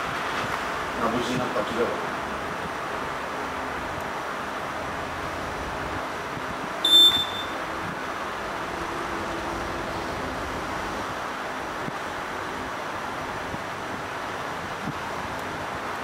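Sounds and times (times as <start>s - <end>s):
steady background noise: 0.0s - 16.0s
short high-pitched beep: 6.8s - 7.6s.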